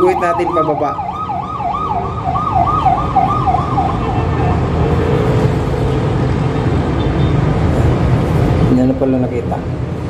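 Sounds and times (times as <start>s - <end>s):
siren yelping: 0.0s - 4.4s
city traffic rumble: 0.0s - 10.0s.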